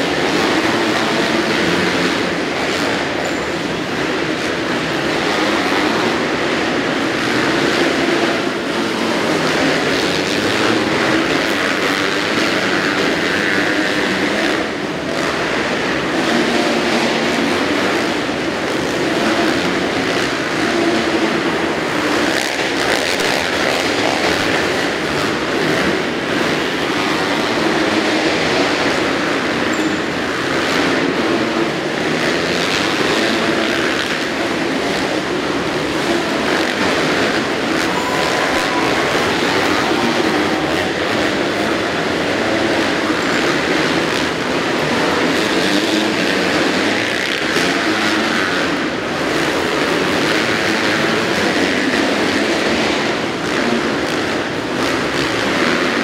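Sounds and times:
motocross bike engines running: 0.0 - 56.0.

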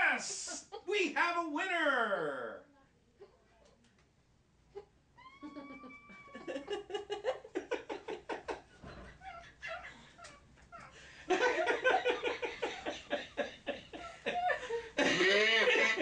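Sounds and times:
rhythmic laughter: 4.8 - 16.0.

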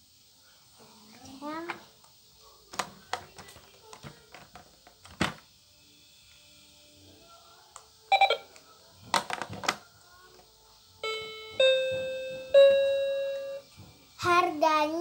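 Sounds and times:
plastic clacks: 2.7 - 5.4, 9.1 - 9.8
toy cash register beeps: 8.1 - 8.5, 11.0 - 13.6.

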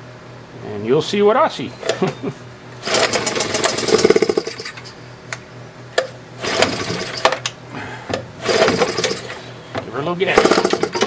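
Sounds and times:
outboard motor pull-start whirr: 2.8 - 4.9, 6.4 - 7.5, 8.4 - 9.5, 10.3 - 11.0.

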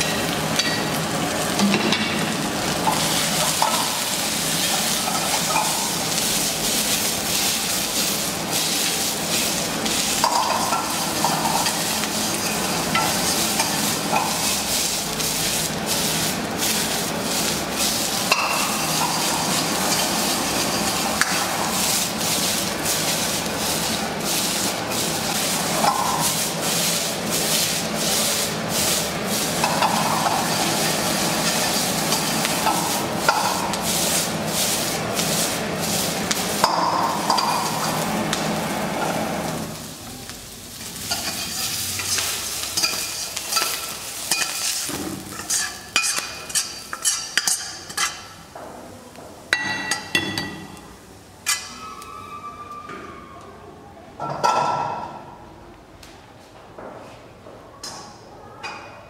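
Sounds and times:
vegetables sizzling in a wok: 0.0 - 52.4
metal ladle scraping a pan: 41.0 - 48.3.

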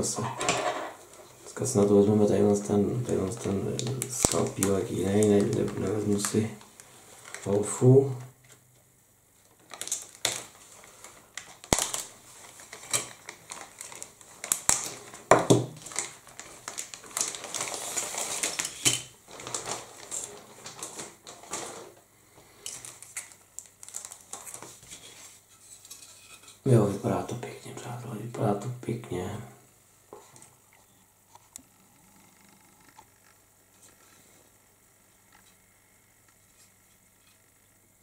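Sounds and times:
plastic bag crinkling and rustling: 0.9 - 8.5, 9.3 - 25.5.

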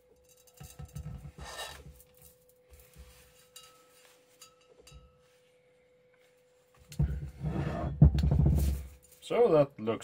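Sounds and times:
metal tube clinking against glass: 3.4 - 5.2.

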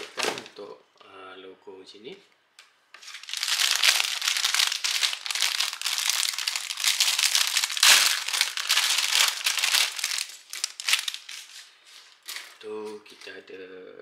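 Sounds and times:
plastic bag crinkling: 0.0 - 0.7, 3.0 - 13.4.

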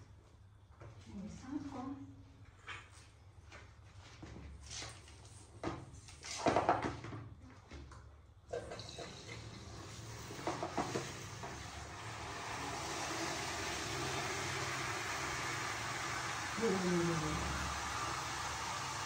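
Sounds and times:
shower water into plastic basin: 8.5 - 19.0.

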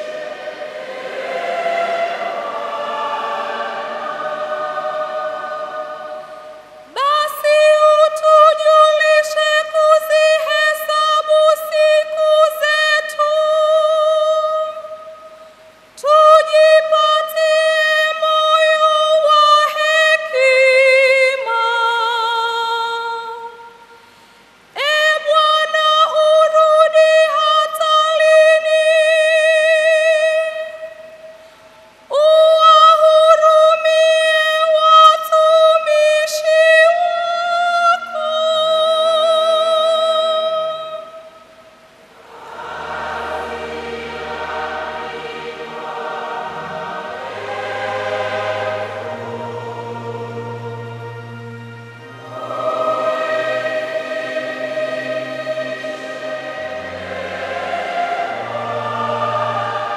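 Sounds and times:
woman singing into a microphone: 6.9 - 15.1, 16.0 - 23.7, 24.8 - 31.0, 32.1 - 41.2.

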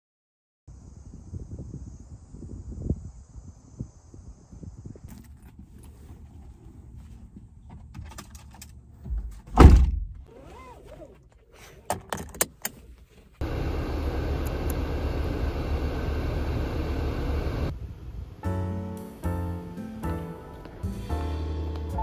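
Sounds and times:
car door thump: 9.1 - 10.2
seatbelt buckle clicks: 10.3 - 12.9
air-conditioning fan rushing: 13.4 - 18.4.

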